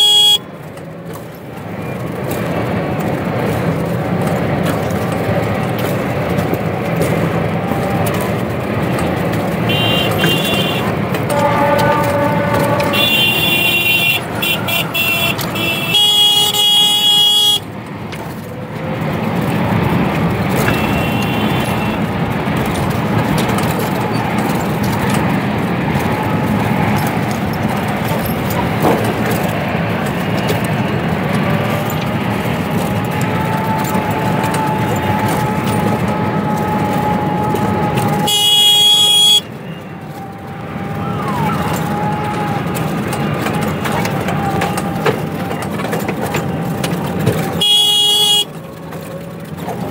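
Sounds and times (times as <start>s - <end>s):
vehicle horn blasts: 0.0s - 0.6s, 9.5s - 17.7s, 20.4s - 23.7s, 31.6s - 40.0s, 47.3s - 48.6s
auto-rickshaw running noise: 0.0s - 49.9s.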